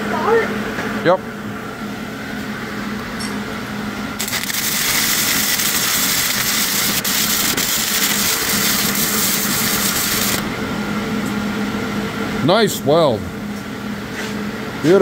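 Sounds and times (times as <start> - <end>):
welding arc crackling: 4.2 - 10.6.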